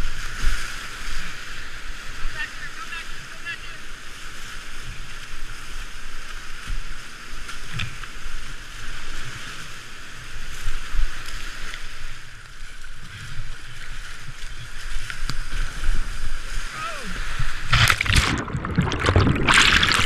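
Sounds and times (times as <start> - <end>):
water splashing: 10.5 - 20.0
whitewater rapids roaring: 16.3 - 20.0.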